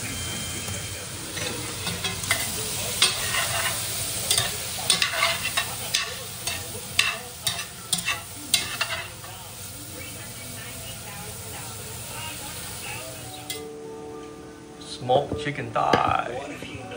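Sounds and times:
sausage sizzling: 0:00.0 - 0:13.9
metal spoon scraping pot: 0:01.4 - 0:09.1.

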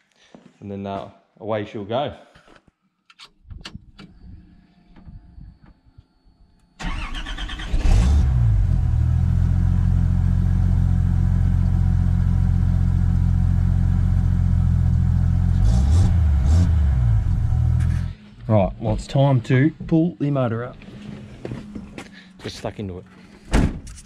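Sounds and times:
car engine starting and idling: 0:06.8 - 0:18.4.

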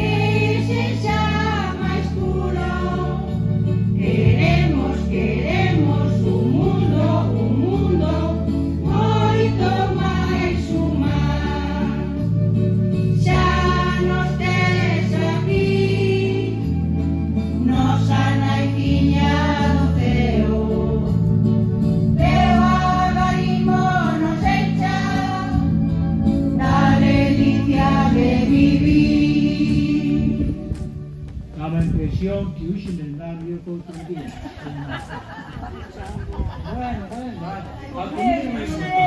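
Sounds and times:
choir singing a hymn: 0:00.0 - 0:31.0.

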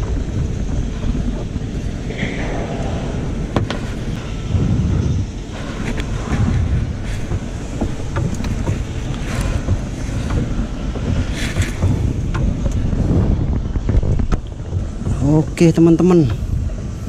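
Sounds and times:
wind buffeting microphone: 0:00.0 - 0:17.0
handling knocks and clicks: 0:05.8 - 0:16.4.

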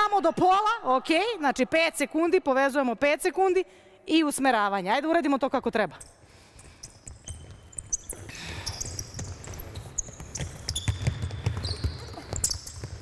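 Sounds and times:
sneakers squeaking on floor: 0:06.6 - 0:13.0
basketball bouncing on hardwood: 0:09.0 - 0:13.0.

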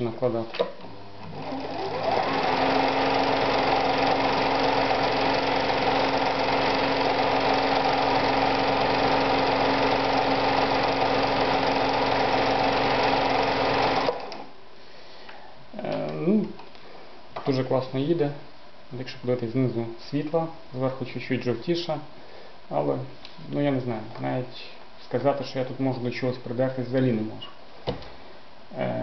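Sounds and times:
motor hum: 0:01.1 - 0:14.5
sewing machine stitching: 0:01.2 - 0:14.5.

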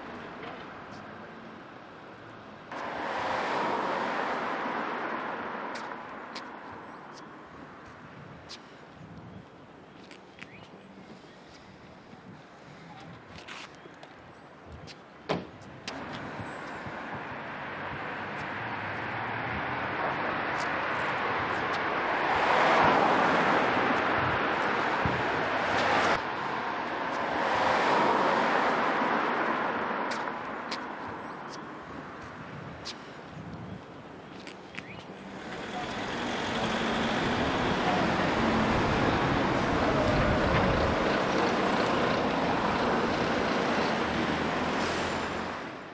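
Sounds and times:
car approaching: 0:15.8 - 0:45.9
bus driving past: 0:15.9 - 0:45.9.

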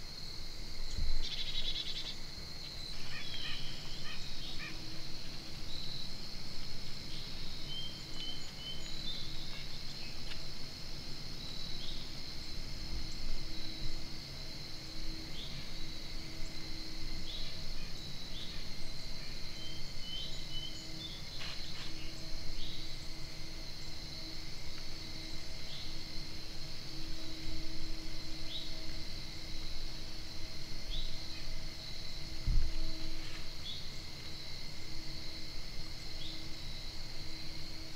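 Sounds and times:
crickets trilling: 0:00.0 - 0:37.9.

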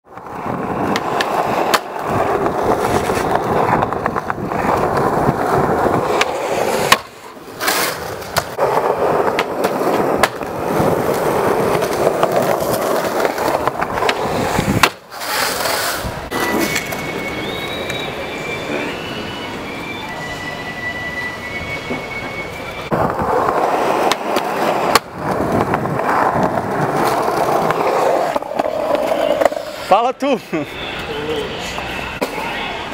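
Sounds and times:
skateboard wheels rolling on concrete: 0:00.0 - 0:32.9
skateboard clacks: 0:00.1 - 0:18.1, 0:22.9 - 0:29.9.

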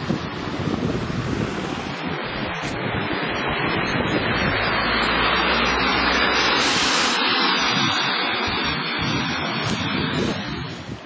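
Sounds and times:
rain on wet city street: 0:00.0 - 0:01.9, 0:03.4 - 0:07.2
low rumble: 0:00.0 - 0:11.0.

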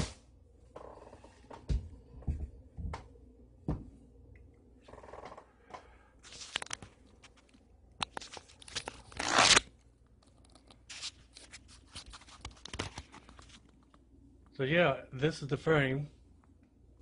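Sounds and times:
camera handling rustles and clicks: 0:06.3 - 0:09.5.

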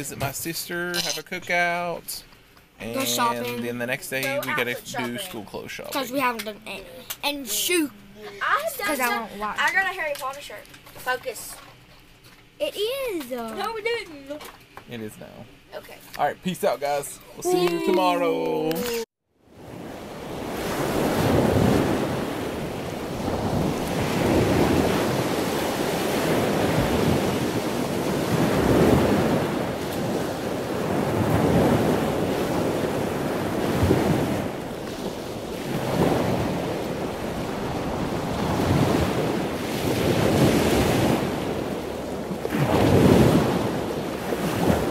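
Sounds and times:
wind buffeting microphone: 0:19.6 - 0:44.9
rushing churning water: 0:20.0 - 0:44.9.

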